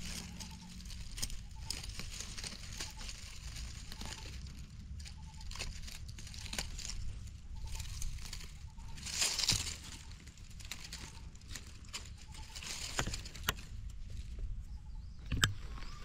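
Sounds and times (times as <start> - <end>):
dry leaves crackling and rustling: 0.0 - 16.0.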